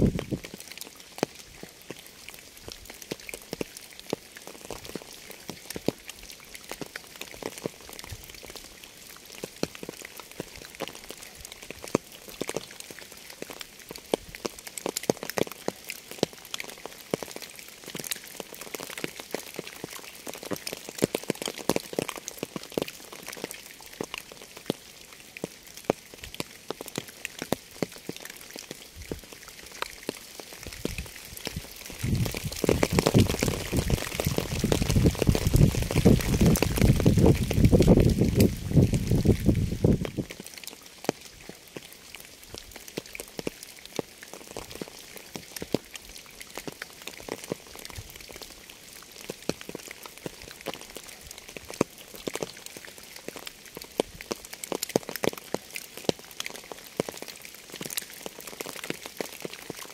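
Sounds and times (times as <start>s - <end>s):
raindrops tapping: 0.0s - 59.9s
rain hissing: 16.2s - 55.7s.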